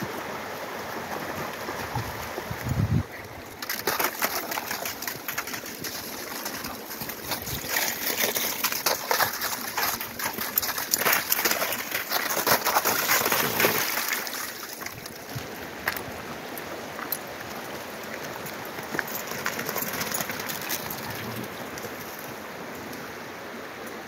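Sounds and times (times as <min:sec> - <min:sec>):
dogs' paws splashing in water: 0:00.0 - 0:23.0
creek water running over rock: 0:00.0 - 0:24.0.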